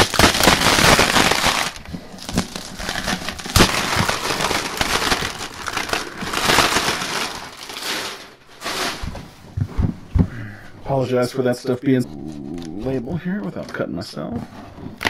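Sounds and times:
plastic shrink-wrap crinkling: 0.0 - 9.3.

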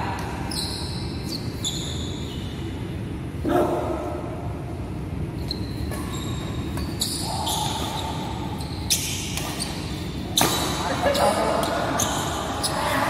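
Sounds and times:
shoes squeaking on floor: 0.5 - 2.7, 5.4 - 13.0
racket hitting shuttlecock: 10.4 - 10.8.

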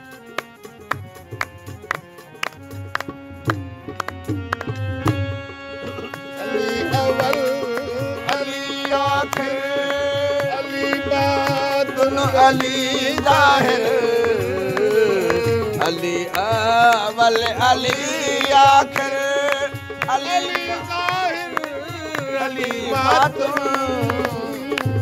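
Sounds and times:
harmonium melody: 0.0 - 25.0
hand drum beat: 0.8 - 5.3, 12.2 - 25.0.

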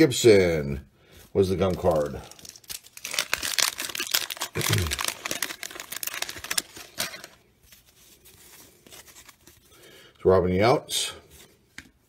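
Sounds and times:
cards rustling: 1.2 - 9.9
wax paper wrapper crinkling: 1.2 - 10.0.

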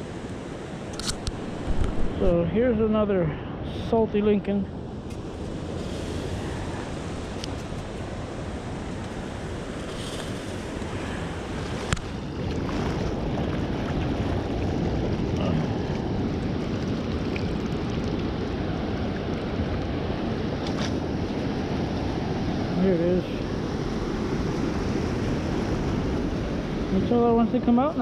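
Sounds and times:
sharp click: 0.9 - 2.0
ocean surf washing around legs: 4.8 - 28.0.

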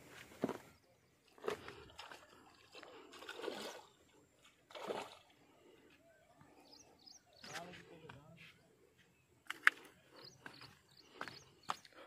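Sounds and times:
water splashing: 1.3 - 5.5.

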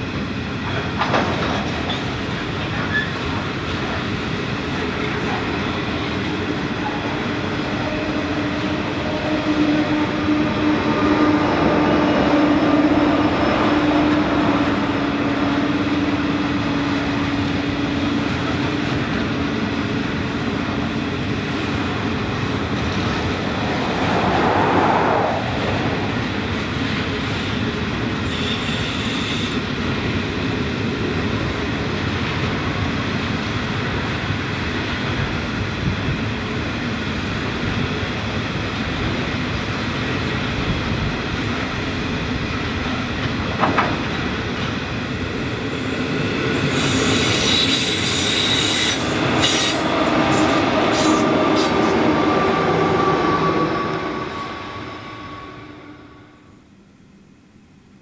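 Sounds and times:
train wheels rumbling on rail: 0.0 - 56.4
clickety-clack over rail joints: 0.5 - 7.3, 42.5 - 45.3.

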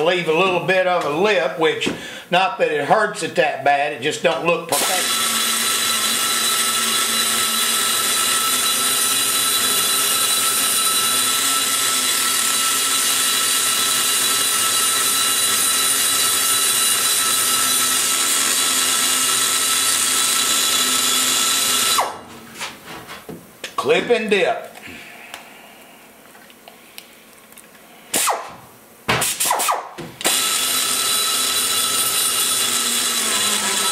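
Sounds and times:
die grinder whining: 4.7 - 22.3, 29.6 - 33.9.

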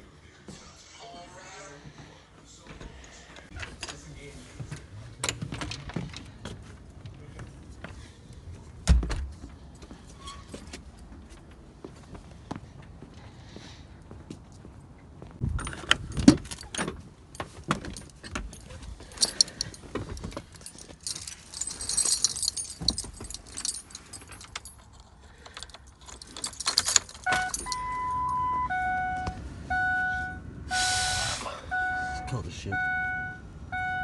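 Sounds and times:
handling clicks and rattles: 15.5 - 28.1
keys jangling: 15.5 - 28.4
car warning chime: 27.2 - 34.0.

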